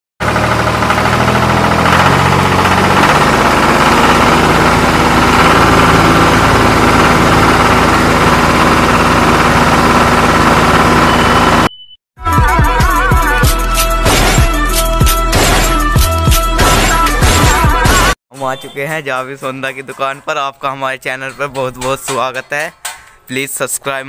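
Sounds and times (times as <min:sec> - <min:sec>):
engine running loudly: 0:00.2 - 0:11.7
rapid even knocking: 0:21.0 - 0:23.1.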